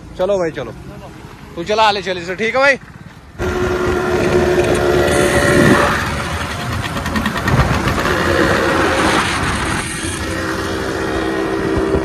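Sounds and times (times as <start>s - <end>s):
motorcycle engine with loud exhaust: 0.0s - 12.0s.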